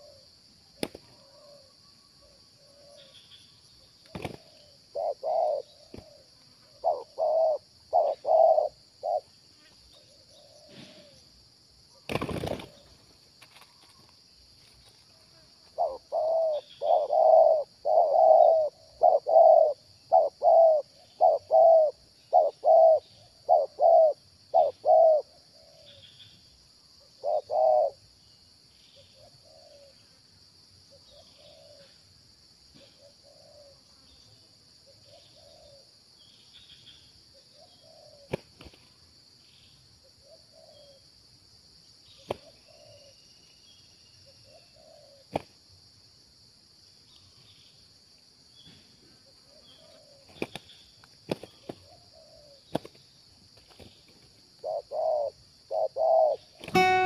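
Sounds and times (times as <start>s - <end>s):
doves cooing: 4.1s - 9.3s, 10.1s - 11.2s, 12.0s - 13.0s, 15.8s - 25.9s, 27.2s - 28.0s, 31.1s - 31.9s, 35.1s - 35.8s, 37.8s - 38.5s, 44.5s - 45.4s, 51.3s - 52.9s, 54.6s - 57.0s.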